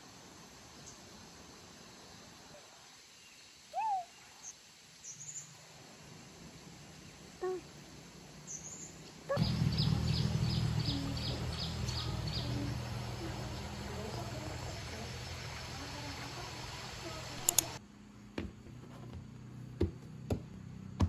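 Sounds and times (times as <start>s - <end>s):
steady low hum: 6.1s - 21.0s.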